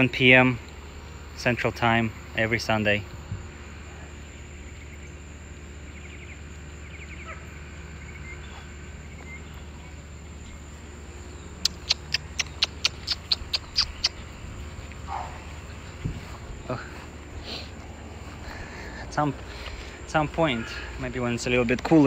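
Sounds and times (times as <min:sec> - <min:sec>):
steady low hum: 0:00.0 - 0:22.0
sharp high-pitched animal calls: 0:11.5 - 0:15.8.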